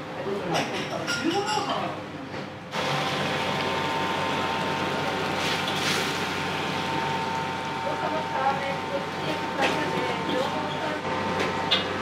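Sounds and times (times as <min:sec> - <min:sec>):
gas burner rushing: 0:02.7 - 0:12.0.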